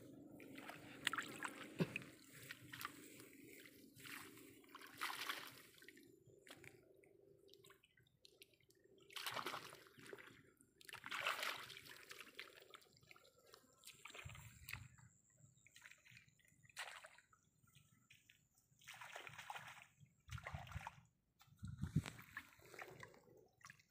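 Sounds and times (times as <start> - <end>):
hands splashing in shallow water: 0.4 - 6.8, 9.1 - 12.7, 15.6 - 23.9.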